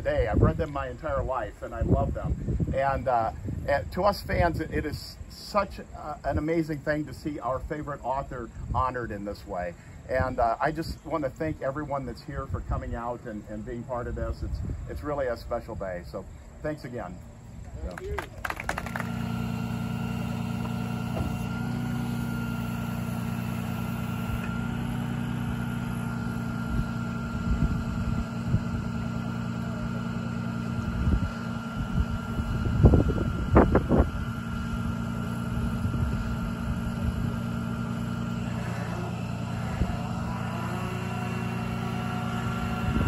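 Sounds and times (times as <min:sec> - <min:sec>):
faint steady whine: 0:00.0 - 0:43.0
truck engine idling: 0:17.3 - 0:43.0.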